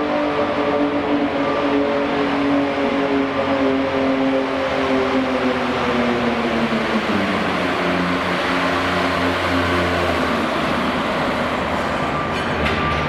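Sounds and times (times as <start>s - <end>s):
diesel tractor engine lugging: 6.8s - 13.0s.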